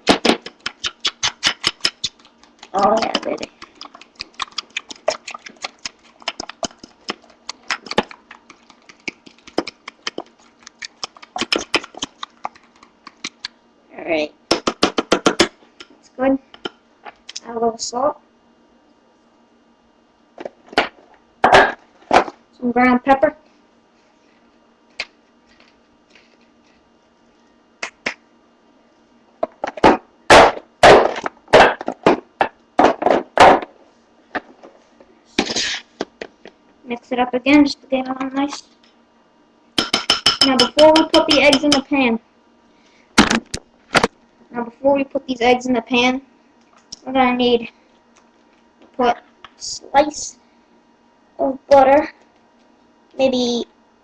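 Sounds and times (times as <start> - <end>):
pepper mill grinding: 0.4 - 13.4
fork clicking against a bowl: 0.6 - 13.5.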